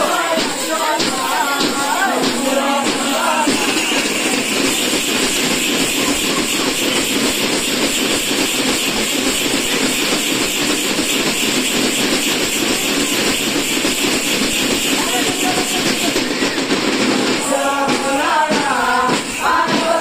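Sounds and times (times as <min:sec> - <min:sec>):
bells jingling: 0:00.0 - 0:20.0
frame drums fast rhythm: 0:00.0 - 0:20.0.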